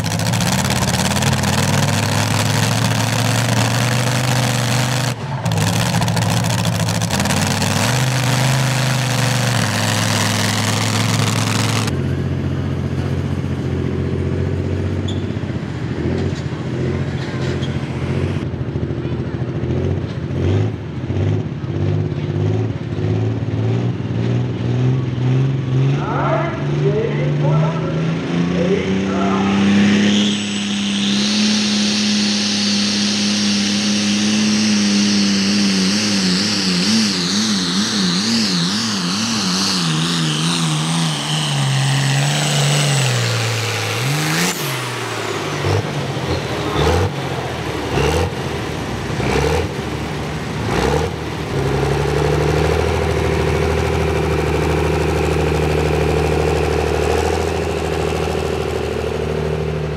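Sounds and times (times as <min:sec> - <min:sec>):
engine idling: 0:00.0 - 0:16.6, 0:41.1 - 0:59.9
truck engine revving: 0:00.0 - 0:59.9.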